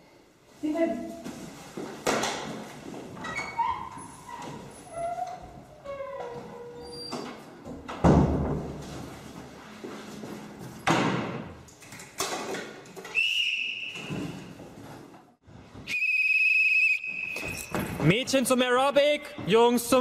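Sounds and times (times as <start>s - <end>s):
door banging shut: 7.9s - 8.8s
sports whistle blast: 13.1s - 14.1s, 15.9s - 17.7s.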